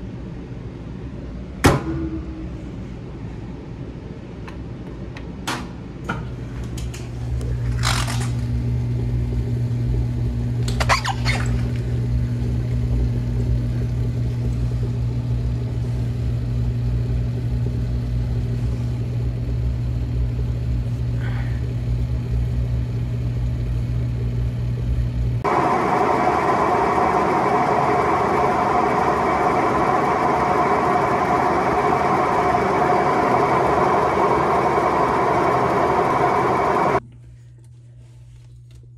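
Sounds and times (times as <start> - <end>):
washing machine drain pump humming: 6.7 - 37.0.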